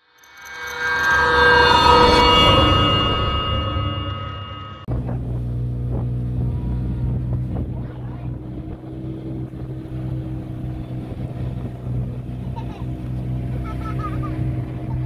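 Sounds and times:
motorboat engine running: 4.9s - 15.0s.

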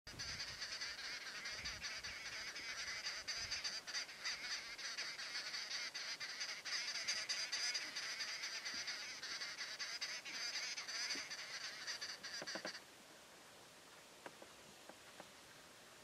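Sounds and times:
birds chattering: 0.1s - 12.8s.

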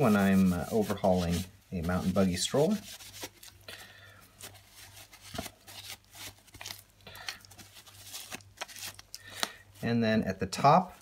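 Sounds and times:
tissue paper rustling on metal: 0.0s - 3.6s, 4.3s - 6.9s.

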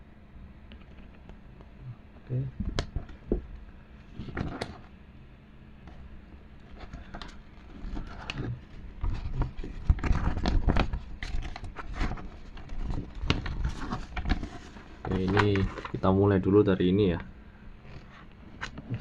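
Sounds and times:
paper rustling: 6.7s - 16.2s.

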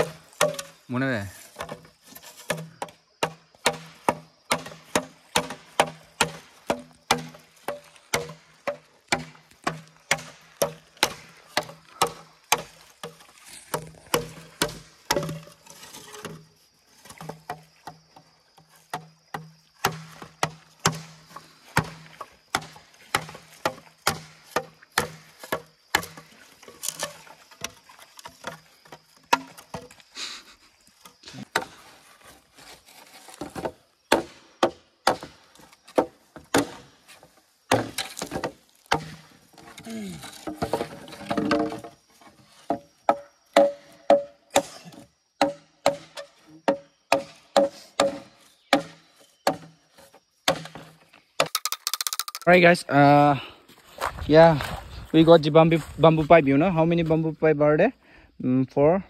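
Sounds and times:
bamboo being chopped: 0.0s - 0.8s, 1.4s - 16.5s, 17.1s - 30.0s, 31.3s - 31.9s, 33.2s - 41.9s, 42.6s - 49.8s, 50.4s - 52.4s.

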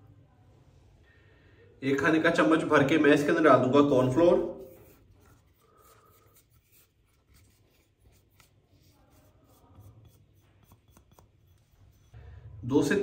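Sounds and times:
spatula scraping glass bowl: 9.0s - 12.3s.

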